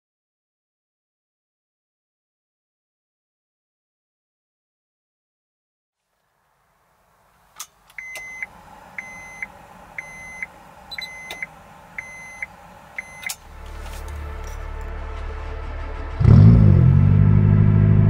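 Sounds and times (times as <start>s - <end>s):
low steady hum: 6.1s - 18.0s
electronic warning chime beeping: 8.0s - 13.4s.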